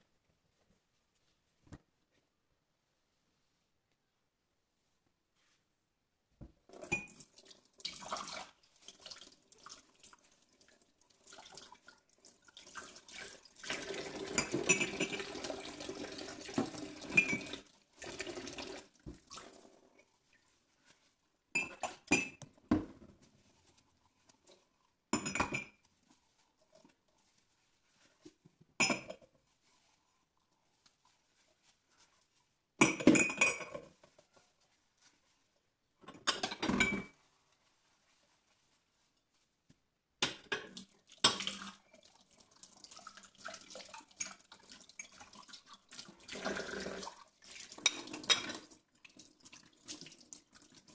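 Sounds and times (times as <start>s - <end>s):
tap water running: 6.7s - 19.9s, 40.5s - 50.9s
mugs clinking against sink: 14.1s - 15.5s, 16.1s - 17.6s, 21.6s - 22.9s, 25.1s - 25.8s, 28.8s - 29.3s, 32.8s - 33.9s.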